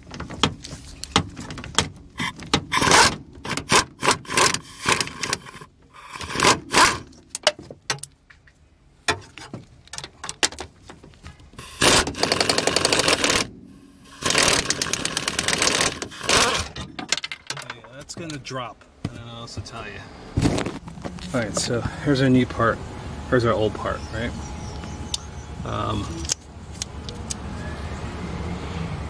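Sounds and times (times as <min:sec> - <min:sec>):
ratchet clicking: 0:02.2 - 0:07.1, 0:11.6 - 0:13.5, 0:14.1 - 0:16.7.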